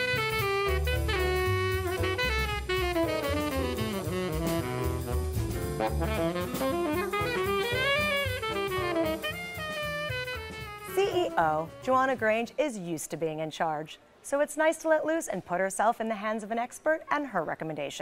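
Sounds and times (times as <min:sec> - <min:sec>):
jazz horn melody over drums: 0:00.0 - 0:12.5.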